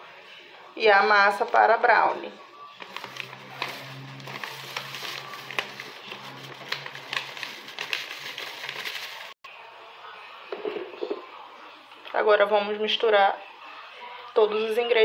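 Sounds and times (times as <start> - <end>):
plastic bag crinkling: 2.8 - 9.4
powder pouring into bowl: 2.8 - 9.4.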